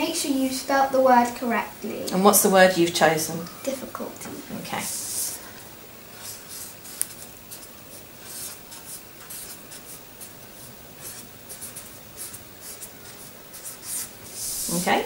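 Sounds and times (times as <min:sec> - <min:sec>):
pen scratching on paper: 0:06.1 - 0:14.9.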